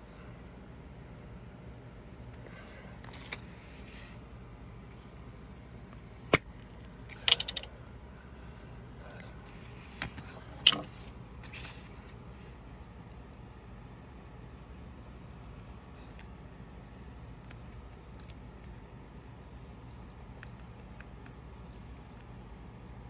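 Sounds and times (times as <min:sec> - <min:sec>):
paper rustling: 0:03.0 - 0:04.2, 0:09.5 - 0:12.5.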